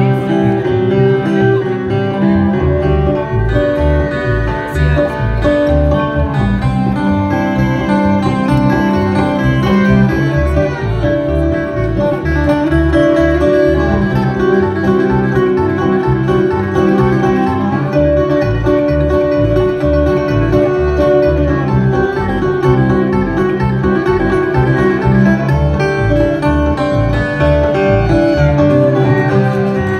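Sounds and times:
banjo picking: 0.0s - 29.9s
bass beat: 0.0s - 29.9s
bluegrass band playing: 0.0s - 29.9s.

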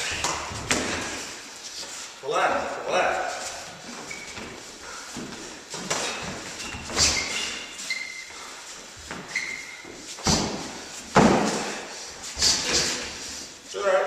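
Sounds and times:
shoes squeaking on canvas: 3.4s - 13.3s
feet striking ring floor: 8.9s - 11.8s.

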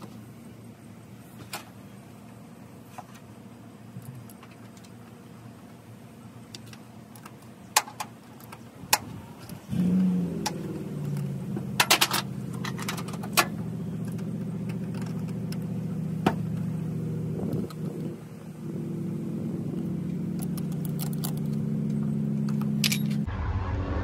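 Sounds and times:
engine idling: 0.0s - 24.0s
wrench clinking on battery clamp: 22.8s - 23.2s.

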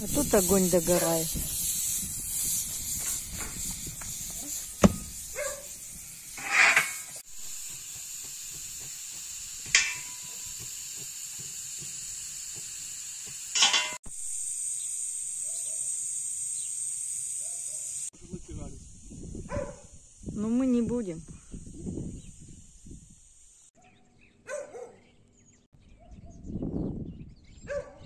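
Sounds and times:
steam hissing from pressure valve: 0.0s - 20.3s.

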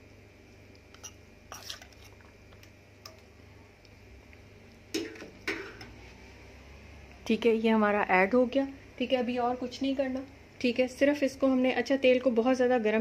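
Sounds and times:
metal spoon scraping a wok: 0.9s - 2.2s.

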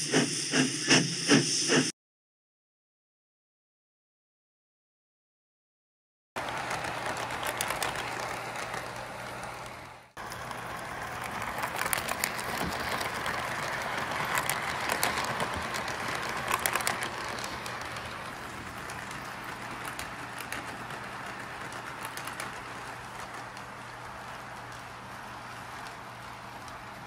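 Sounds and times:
clicks over rail joints: 6.4s - 27.0s
toy train whirring on track: 6.4s - 27.0s.

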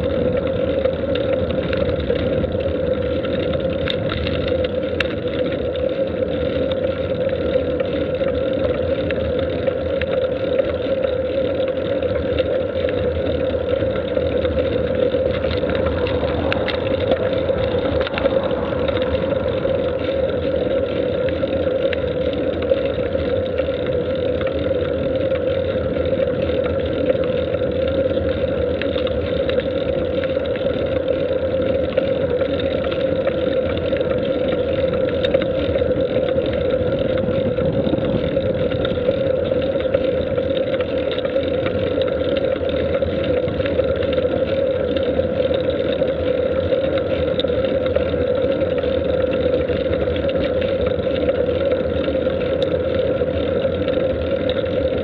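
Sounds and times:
vehicle engine and road drone: 0.0s - 55.0s.

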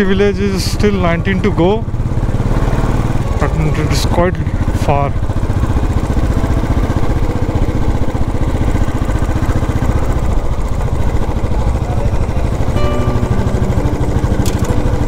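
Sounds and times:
motorcycle engine running: 0.0s - 15.0s
background music: 12.6s - 15.0s.

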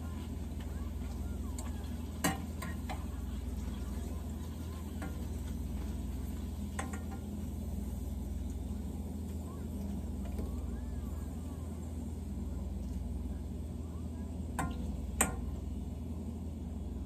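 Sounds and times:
steady low hum: 0.0s - 17.0s
utensil tapping a pan: 6.7s - 7.3s, 14.6s - 15.5s.

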